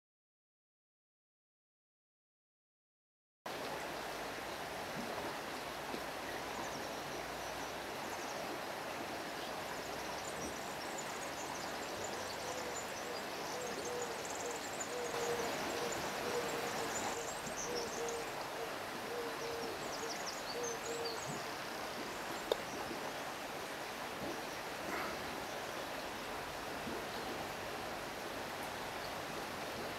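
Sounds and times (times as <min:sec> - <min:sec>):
river water flowing over rocks: 0:03.5 - 0:29.9
bird hooting: 0:13.6 - 0:19.8.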